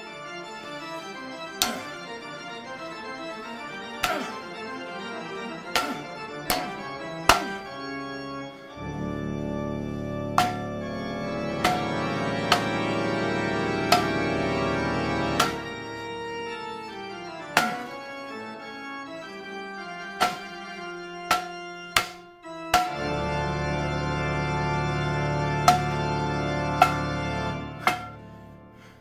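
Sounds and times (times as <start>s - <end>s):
sustained organ chords over bass: 0.0s - 29.0s
sharp irregular hits: 5.7s - 7.7s, 10.3s - 14.5s, 15.3s - 16.0s, 17.5s - 18.0s, 20.1s - 20.7s, 21.3s - 23.1s, 25.6s - 26.2s, 26.8s - 28.4s.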